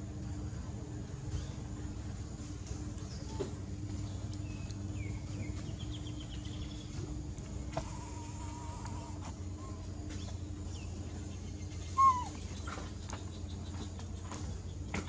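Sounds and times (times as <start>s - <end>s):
insects droning: 0.0s - 15.0s
low steady rumble: 0.0s - 15.0s
thin whistled calls: 11.6s - 12.8s.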